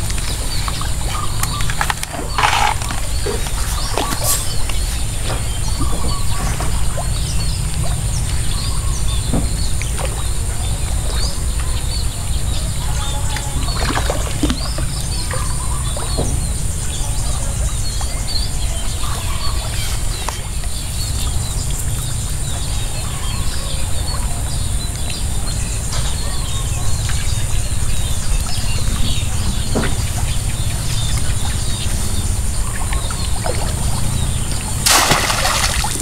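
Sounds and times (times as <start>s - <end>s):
birds chirping: 0.0s - 36.0s
water splashing and dripping: 13.3s - 16.4s, 31.1s - 36.0s.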